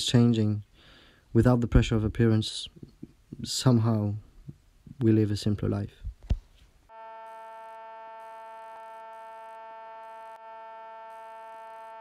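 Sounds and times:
steady electronic chord tone: 6.9s - 12.0s.

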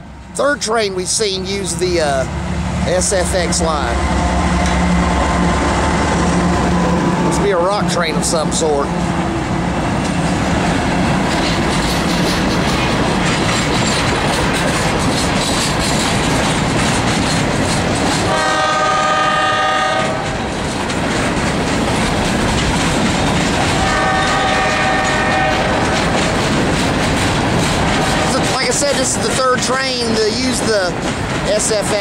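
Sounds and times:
train cars rolling past: 0.0s - 32.0s
locomotive horn blasts: 18.3s - 20.3s, 23.8s - 25.7s.

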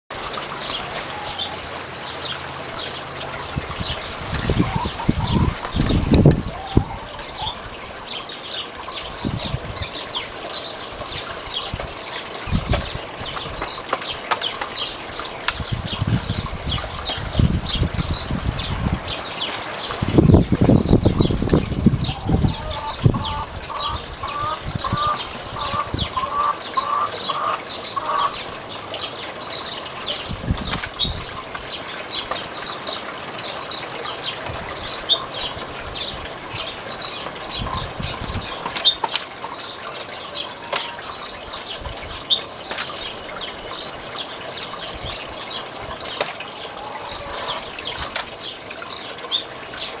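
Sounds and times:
water gushing and sloshing: 0.1s - 50.0s.

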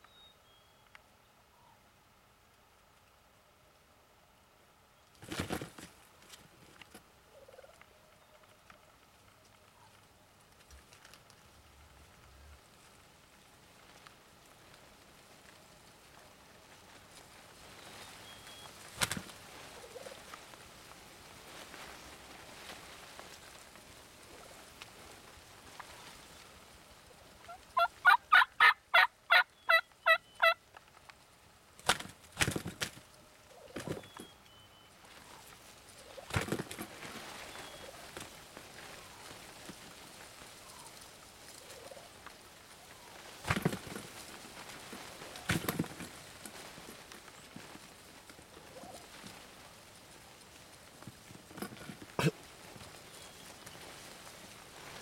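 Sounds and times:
wings flapping and thumping: 5.2s - 6.9s, 18.8s - 20.2s, 31.8s - 33.1s, 33.7s - 34.3s, 36.1s - 40.0s, 43.2s - 47.8s
turkey gobbling: 7.3s - 7.9s, 27.5s - 30.6s, 48.7s - 49.0s
soft wavering turkey call: 27.1s - 30.6s.

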